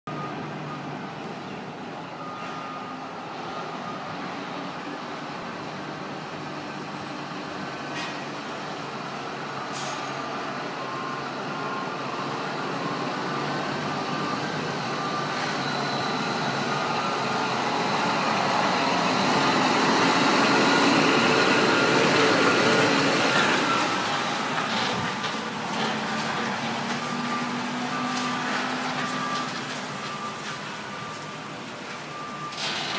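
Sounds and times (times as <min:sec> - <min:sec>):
truck diesel engine running: 0:10.6 - 0:32.4.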